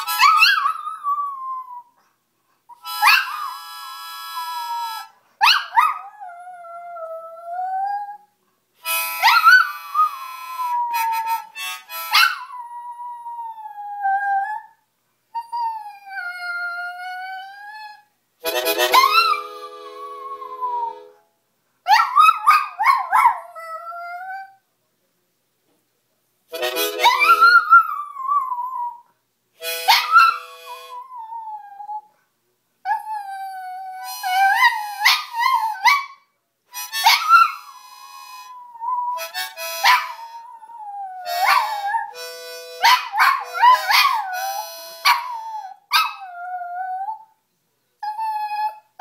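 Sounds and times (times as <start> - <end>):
harmonica chords: 2.8 - 5.1, 8.8 - 12.2, 18.4 - 21.2, 26.5 - 27.7, 29.6 - 31.0, 34.0 - 35.0, 36.7 - 38.6, 39.2 - 40.4, 41.3 - 45.1.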